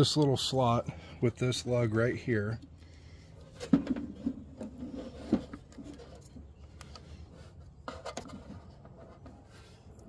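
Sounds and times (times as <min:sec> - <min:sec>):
plastic spool rubbing and scraping: 0:03.5 - 0:09.9.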